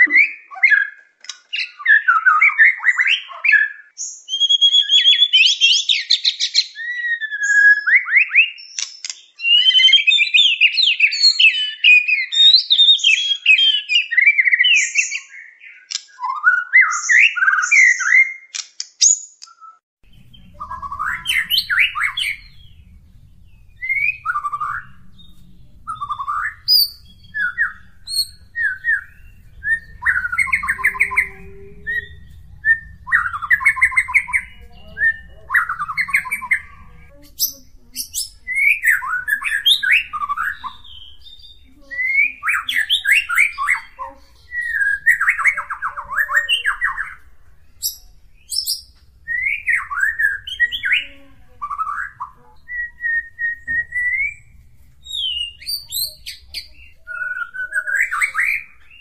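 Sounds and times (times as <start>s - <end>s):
low steady rumble: 20.0s - 57.6s
songbird trilling: 20.0s - 59.0s.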